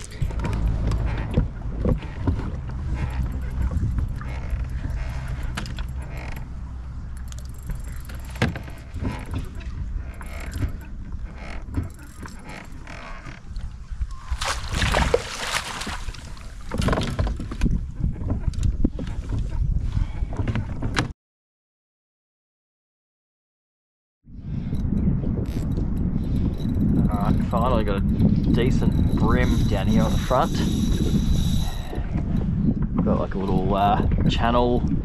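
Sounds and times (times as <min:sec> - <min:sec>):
low steady rumble: 0:00.0 - 0:16.6
gear knocking against kayak hull: 0:00.0 - 0:19.6.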